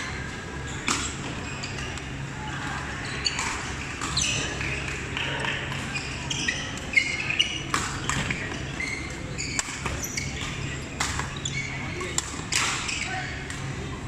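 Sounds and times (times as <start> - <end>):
voices chattering in a hall: 0.0 - 14.0
sneaker squeaks on court floor: 0.6 - 2.0, 3.0 - 4.8, 5.8 - 12.2.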